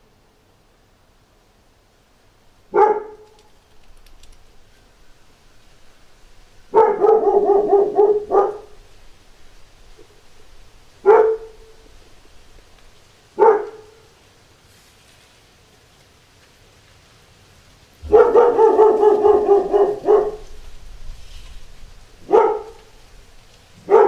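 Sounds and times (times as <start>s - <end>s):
dog barking: 2.7s - 3.4s, 6.7s - 8.9s, 11.0s - 11.8s, 13.4s - 14.1s, 18.0s - 20.6s, 22.2s - 23.0s.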